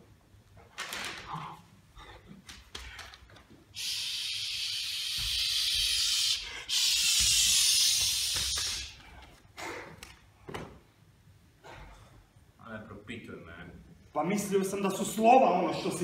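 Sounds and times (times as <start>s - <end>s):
person hissing: 3.8s - 9.0s.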